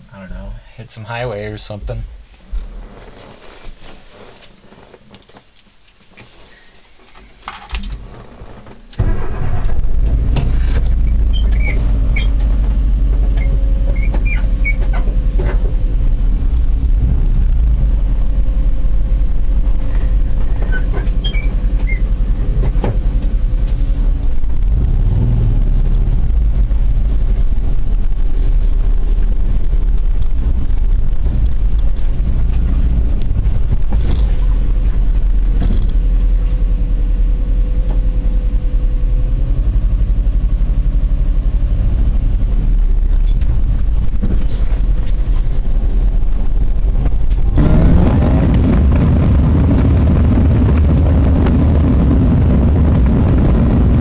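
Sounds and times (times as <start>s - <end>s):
engine and tyres rumbling on dirt: 0.0s - 54.0s
short high-pitched squeaks: 11.1s - 12.4s, 13.4s - 15.6s, 20.6s - 22.1s.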